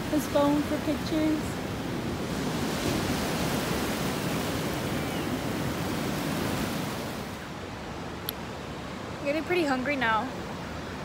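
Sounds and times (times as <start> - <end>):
ocean surf washing onto beach: 0.0 - 11.0.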